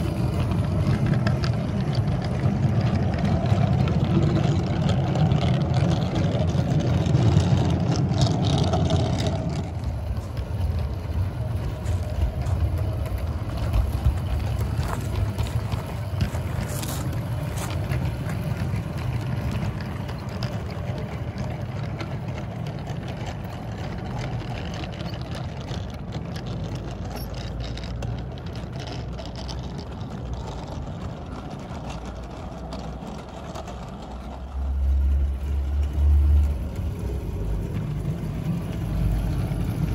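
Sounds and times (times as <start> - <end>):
model train wheels rumbling: 0.0 - 39.9.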